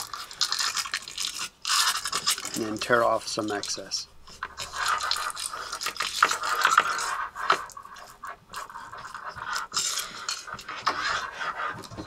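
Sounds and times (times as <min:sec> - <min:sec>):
foil tearing: 0:00.0 - 0:03.8, 0:04.6 - 0:07.2
aluminum foil crinkling: 0:00.0 - 0:12.0.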